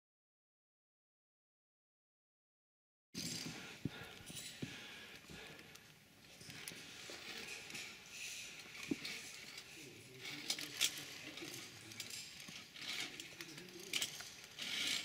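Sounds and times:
clicks and scrapes on steel cable: 4.1s - 15.0s
faint voices: 6.4s - 15.0s.

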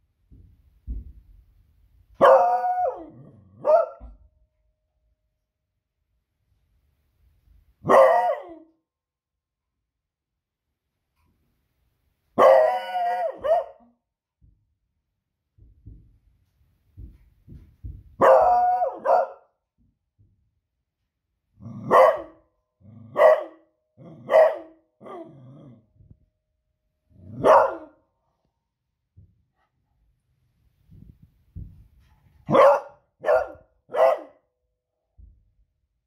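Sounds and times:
dog barking: 2.2s - 4.2s, 7.8s - 8.7s, 12.4s - 13.9s, 18.2s - 19.6s, 21.8s - 22.4s, 23.0s - 25.4s, 27.2s - 28.0s, 32.4s - 34.5s.

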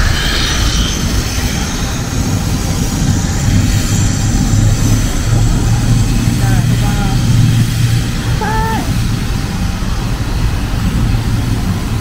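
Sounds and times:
high turbine whine: 0.0s - 12.0s
propeller engines droning: 0.0s - 12.0s.

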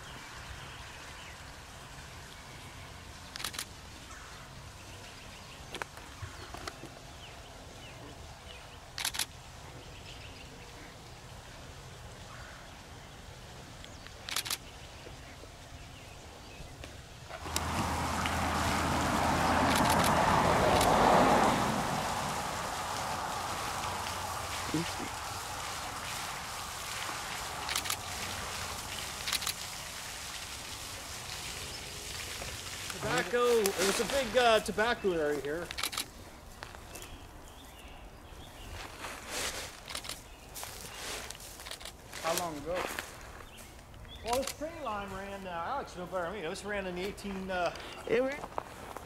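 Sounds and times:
fountain splashing into water: 0.0s - 16.7s, 17.3s - 36.1s
rural background hum: 0.0s - 49.0s.

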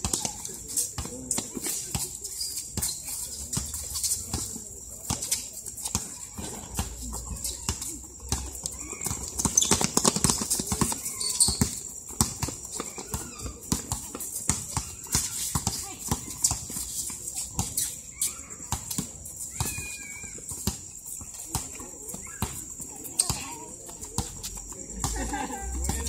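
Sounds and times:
basketball bouncing on concrete: 3.5s - 16.7s.

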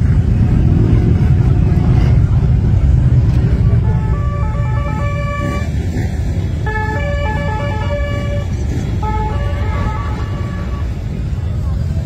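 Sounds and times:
motorcycle engines droning: 0.0s - 12.0s.

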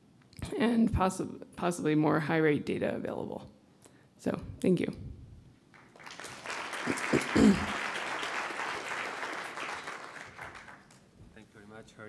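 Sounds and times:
audience applauding: 5.7s - 11.0s.

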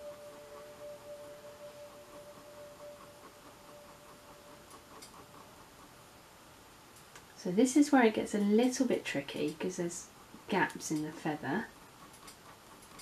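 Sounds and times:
bell-like held notes: 0.0s - 4.6s.

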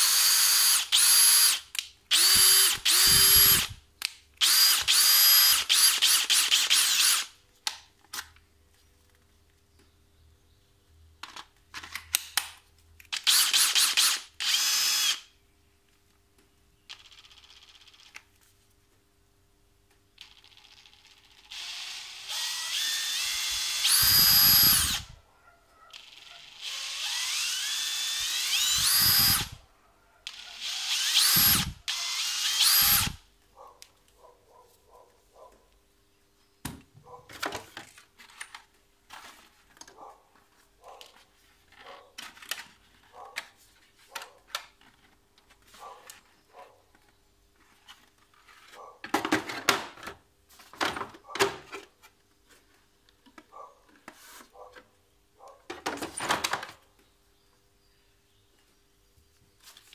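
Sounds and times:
cordless drill motor whine: 0.0s - 3.8s, 4.4s - 7.3s, 13.2s - 15.3s, 20.2s - 25.2s, 26.0s - 29.6s, 30.3s - 33.2s.

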